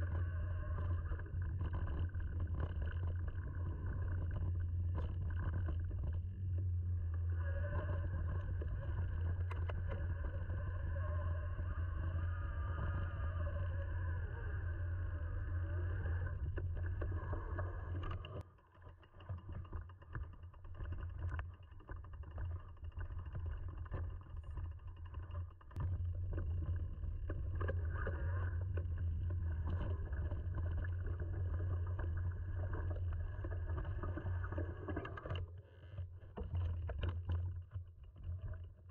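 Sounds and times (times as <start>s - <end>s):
low rumble of trail and air: 0.0s - 18.4s.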